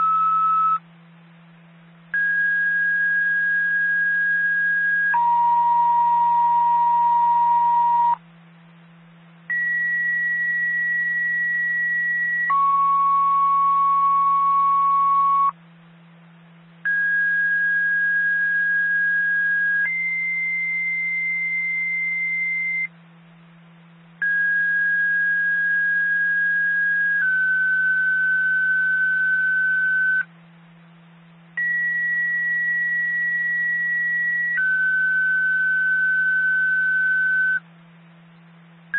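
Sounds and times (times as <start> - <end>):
two-tone radio paging tones: 0.0 - 0.8, 9.5 - 15.6, 16.9 - 22.9, 24.2 - 30.3, 31.6 - 37.6
steady low hum: 0.0 - 38.9.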